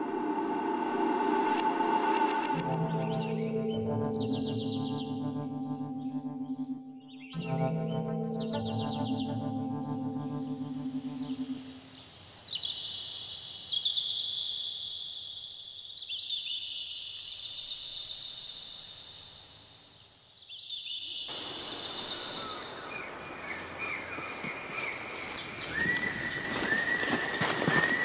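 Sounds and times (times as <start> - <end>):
high trilling chirps: 2.8 - 12.0
footsteps through dry leaves: 21.7 - 28.0.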